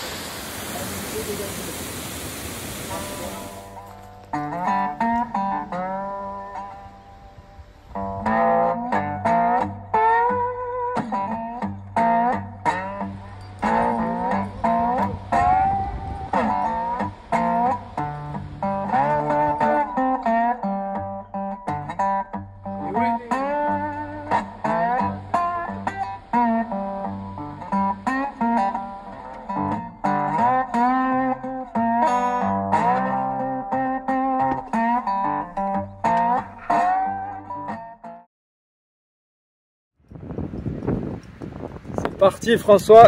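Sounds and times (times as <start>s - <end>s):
bluesy slide guitar tune: 2.9s - 38.2s.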